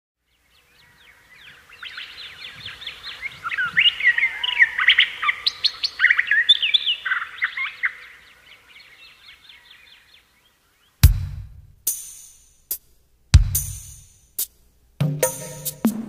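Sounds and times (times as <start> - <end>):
birds chirping and trilling: 0.2 - 11.1.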